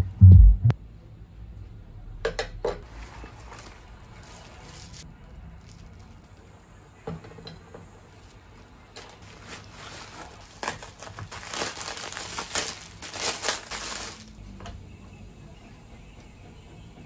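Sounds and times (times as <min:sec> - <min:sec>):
plastic packaging crinkling: 0:02.9 - 0:06.6, 0:08.1 - 0:14.4.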